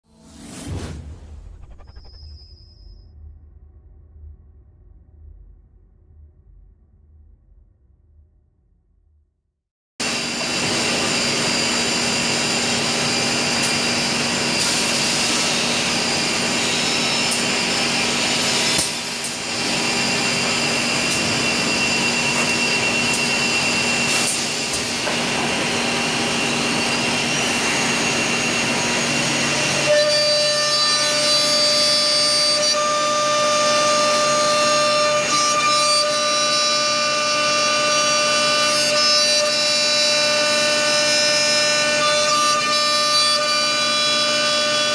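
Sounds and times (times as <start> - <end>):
drilling machine spindle whine: 10.0 - 44.9.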